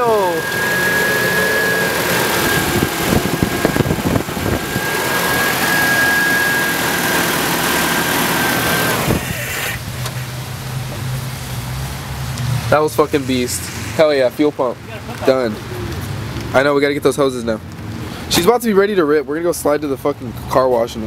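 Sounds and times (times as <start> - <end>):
fuel pump whine: 0.0 - 11.4
pickup engine revving and idling: 0.0 - 16.8.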